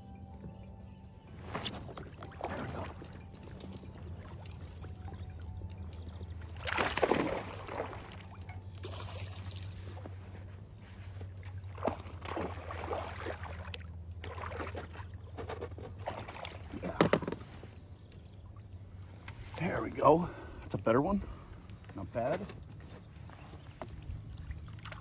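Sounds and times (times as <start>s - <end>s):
fish splashing in water: 6.5s - 10.0s, 11.7s - 15.1s.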